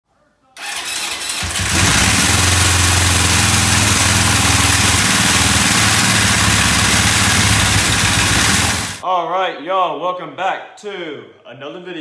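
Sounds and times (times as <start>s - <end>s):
motorcycle engine running: 0.6s - 9.0s.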